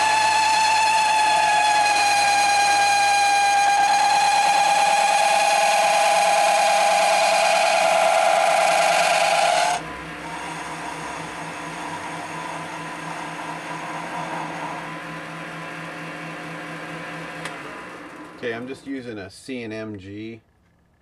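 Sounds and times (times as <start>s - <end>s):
lathe cutting with high squeal: 0.0s - 18.7s
lathe running hum: 0.0s - 19.2s.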